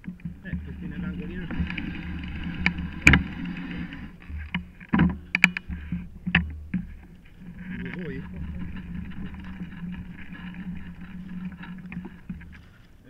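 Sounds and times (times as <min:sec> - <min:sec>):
bike knocks and clatters: 0:00.0 - 0:12.6
low steady rumble: 0:00.0 - 0:12.8.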